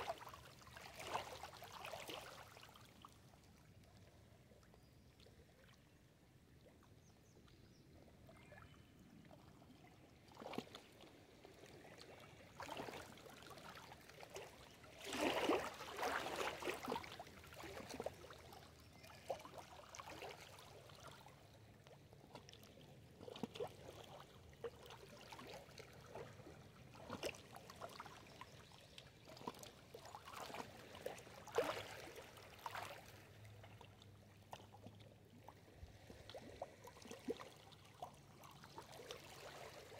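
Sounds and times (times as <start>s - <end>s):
waves lapping against rocks: 10.1s - 21.3s, 22.3s - 28.2s, 29.2s - 34.8s.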